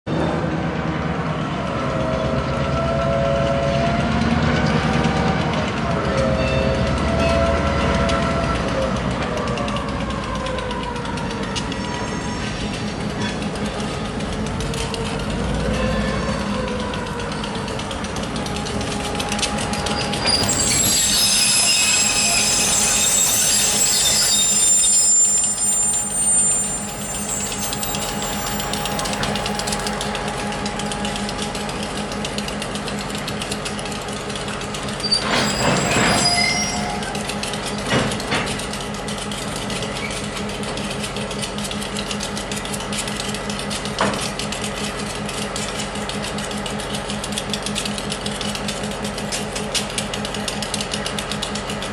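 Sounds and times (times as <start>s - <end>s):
diesel locomotive engine running: 0.1s - 51.9s
train wheels squealing: 1.8s - 14.0s, 14.8s - 17.7s, 18.6s - 32.2s, 34.9s - 38.8s, 39.6s - 41.0s.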